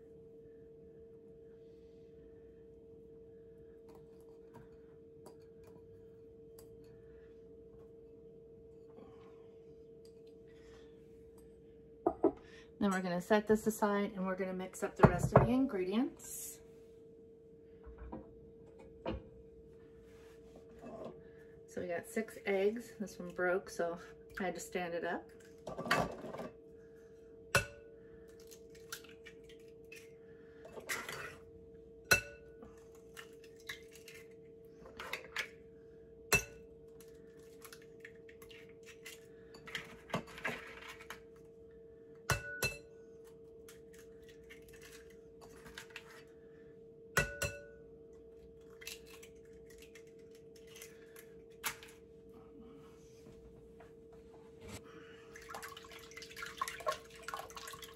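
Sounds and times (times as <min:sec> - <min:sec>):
faint hum: 0:00.0 - 0:57.9
egg shells crackling: 0:48.6 - 0:52.0.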